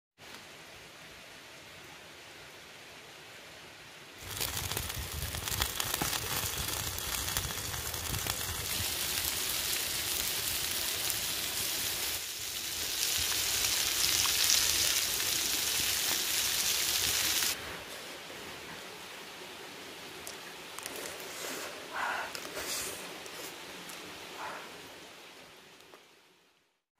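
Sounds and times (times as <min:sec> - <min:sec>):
shrimp sizzling on hot stone: 0:04.2 - 0:17.6
small crackles: 0:04.2 - 0:17.6, 0:20.2 - 0:24.1.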